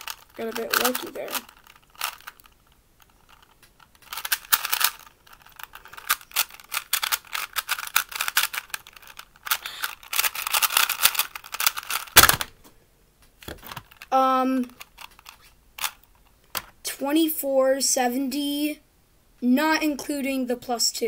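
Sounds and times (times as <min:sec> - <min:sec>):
puzzle cube clicking: 0:00.0 - 0:12.5, 0:13.4 - 0:16.1.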